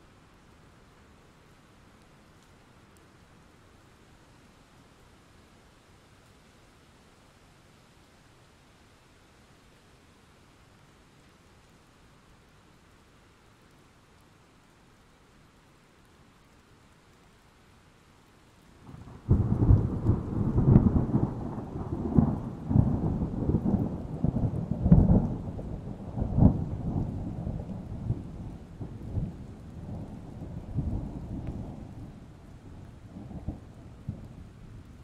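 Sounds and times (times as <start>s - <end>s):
faint rain falling: 0.0s - 35.0s
thunder rumbling and cracking: 18.9s - 35.0s.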